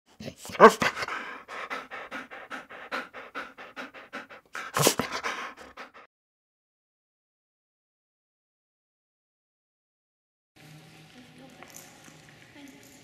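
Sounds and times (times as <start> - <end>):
dog panting: 0.2 - 6.1.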